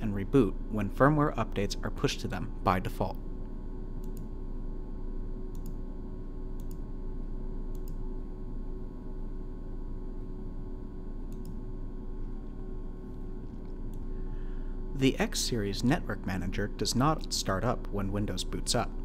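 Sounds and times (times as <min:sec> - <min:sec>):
steady electrical hum: 0:00.0 - 0:19.0
computer mouse clicking: 0:04.0 - 0:04.3, 0:05.5 - 0:05.8, 0:06.6 - 0:06.8, 0:07.7 - 0:08.0, 0:11.3 - 0:11.6.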